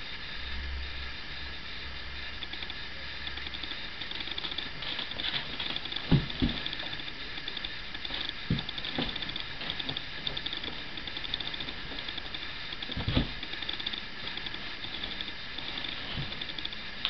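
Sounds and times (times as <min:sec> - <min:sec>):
thumps against cardboard box: 0:06.1 - 0:06.8, 0:12.9 - 0:13.4.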